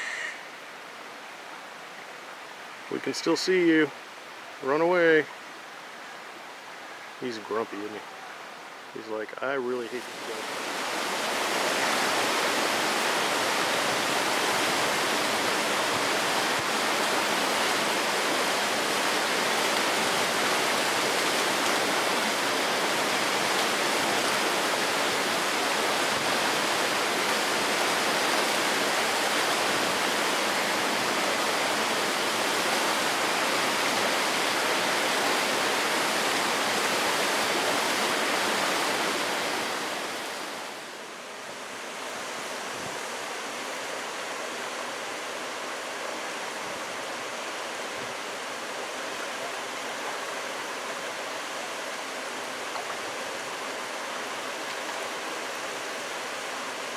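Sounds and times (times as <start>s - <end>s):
water rushing in rocky creek: 0.0s - 56.9s.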